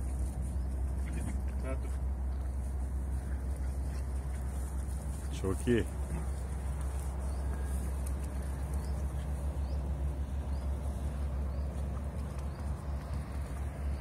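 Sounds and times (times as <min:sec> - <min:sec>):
footsteps on dry pine needles: 0:02.4 - 0:09.5.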